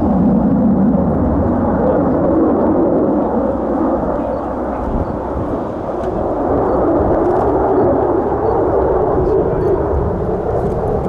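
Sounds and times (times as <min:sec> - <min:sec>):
jet engine roar: 0:00.0 - 0:11.0.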